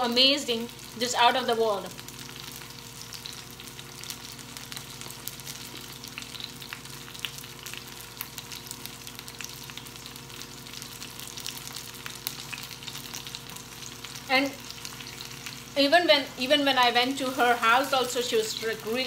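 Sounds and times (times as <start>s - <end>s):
fritters sizzling in hot oil: 0.0s - 19.0s.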